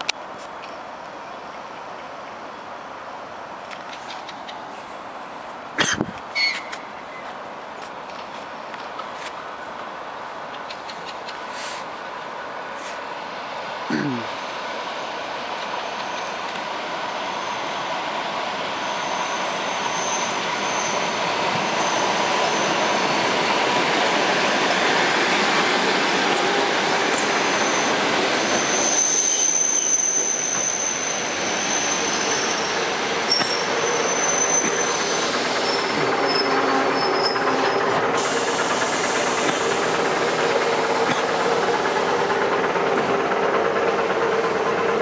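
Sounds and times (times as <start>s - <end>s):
train wheels rushing on rail: 3.7s - 45.0s
high wheel squeal: 17.2s - 18.0s, 18.7s - 23.3s, 26.3s - 40.0s.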